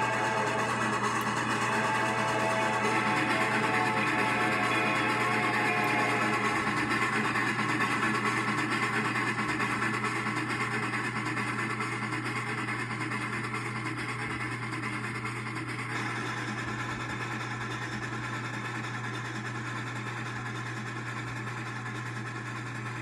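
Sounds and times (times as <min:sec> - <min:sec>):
low hum: 0:00.0 - 0:09.0
model train wheels rattling: 0:00.0 - 0:14.6.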